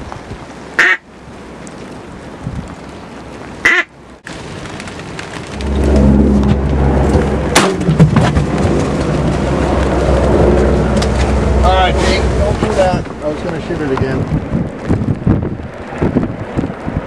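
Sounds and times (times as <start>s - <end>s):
wind buffeting microphone: 0.0s - 17.0s
duck quack: 0.8s - 1.0s, 3.6s - 3.9s
sharp crack: 4.2s - 14.2s.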